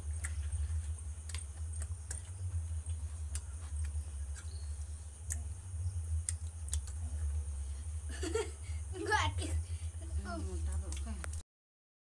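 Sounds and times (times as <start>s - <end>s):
person chewing with mouth clicks: 0.0s - 5.6s, 6.2s - 7.1s
faint high-pitched whine: 0.0s - 11.4s
steady low hum: 0.0s - 11.4s.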